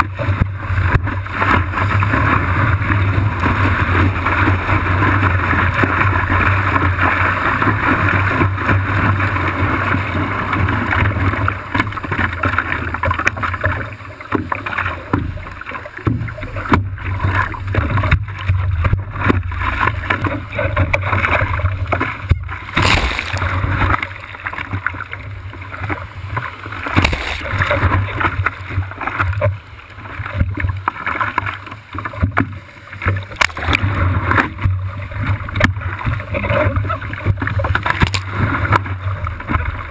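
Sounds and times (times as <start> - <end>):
water rushing and splashing: 0.0 - 39.9
water slapping against board: 9.9 - 25.0, 25.8 - 29.6, 30.2 - 38.9.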